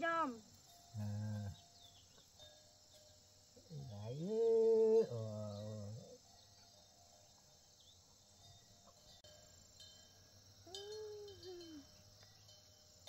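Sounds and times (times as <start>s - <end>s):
water buffalo lowing: 0.9s - 1.8s.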